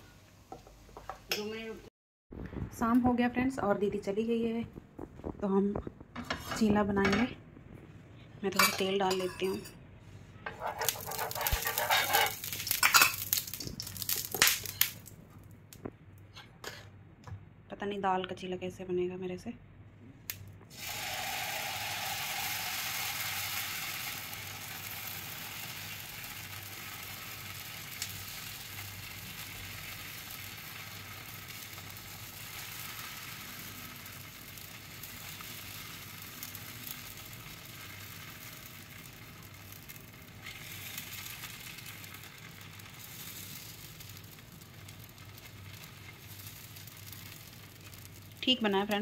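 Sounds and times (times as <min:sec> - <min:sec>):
batter sizzling on hot griddle: 0:10.5 - 0:15.2, 0:20.7 - 0:49.0.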